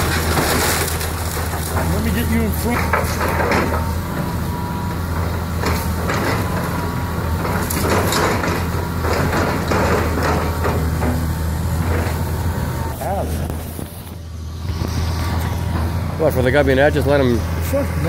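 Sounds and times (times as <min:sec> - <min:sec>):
timber cracking and splintering: 0:00.0 - 0:03.9
debris crashing down: 0:00.0 - 0:04.0
excavator diesel engine running: 0:00.0 - 0:18.0.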